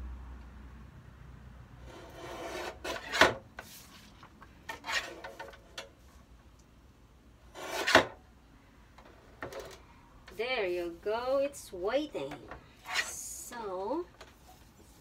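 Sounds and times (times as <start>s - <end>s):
paper rustling and sliding: 1.9s - 5.6s.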